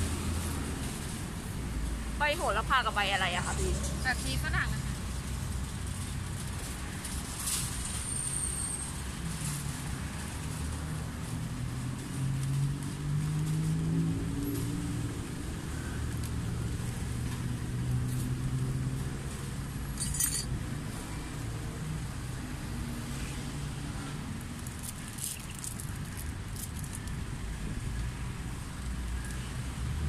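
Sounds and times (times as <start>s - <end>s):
road traffic rumble: 0.0s - 30.0s
plastic bags crackling: 24.5s - 27.2s.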